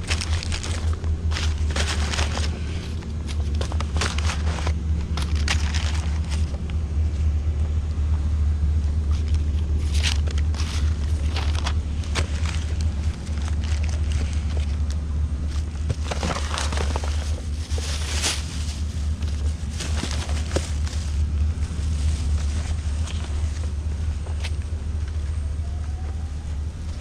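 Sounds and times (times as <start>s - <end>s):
swept debris rustling: 0.0s - 6.5s, 9.6s - 24.6s
low engine drone: 0.0s - 27.0s.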